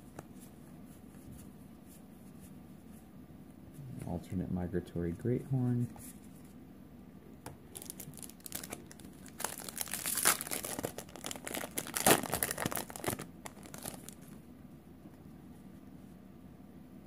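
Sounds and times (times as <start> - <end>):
foil wrapper crinkling: 7.7 - 14.4
foil wrapper ripping: 7.7 - 14.4.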